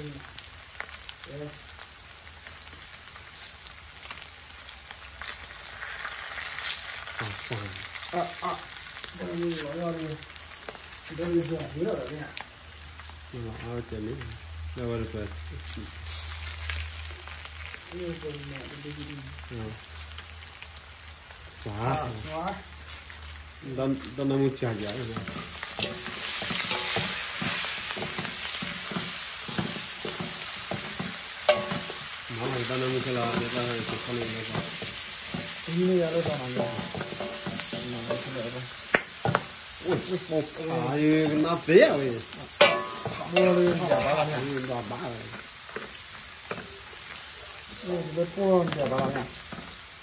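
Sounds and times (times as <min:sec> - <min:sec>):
food sizzling in a wok: 0:00.0 - 0:50.0
metal spoon scraping a wok: 0:25.1 - 0:32.2, 0:36.2 - 0:38.4, 0:42.6 - 0:44.3
spoon knocking against wok: 0:25.2 - 0:32.0, 0:36.3 - 0:39.5, 0:42.6 - 0:43.9.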